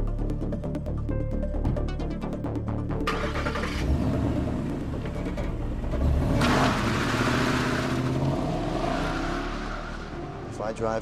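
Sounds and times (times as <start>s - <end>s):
car engine starting and revving: 3.0s - 11.0s.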